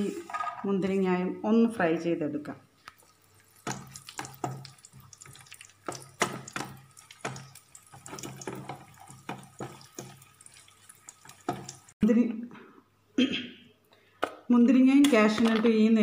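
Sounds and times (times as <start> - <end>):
nuts crackling in hot oil: 2.8 - 12.0
spatula stirring in a pan: 2.9 - 12.0.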